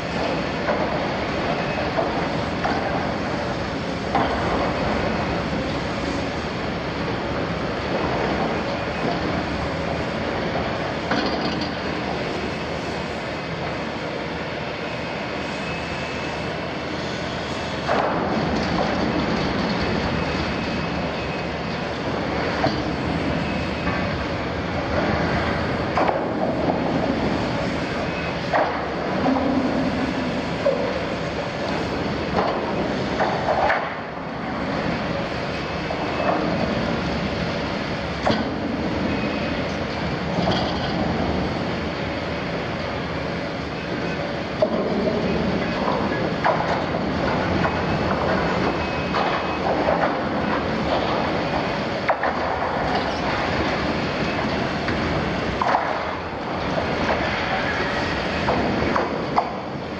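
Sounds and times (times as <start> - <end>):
excavator running under load: 0.0 - 59.9.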